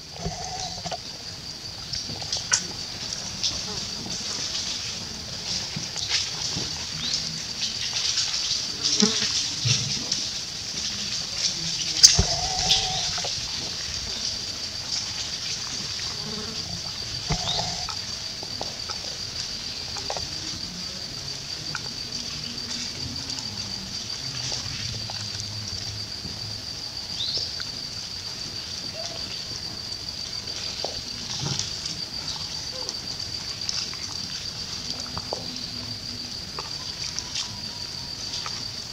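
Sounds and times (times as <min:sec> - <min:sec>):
high-pitched insect drone: 0:00.0 - 0:38.9
short high calls: 0:12.0 - 0:13.4.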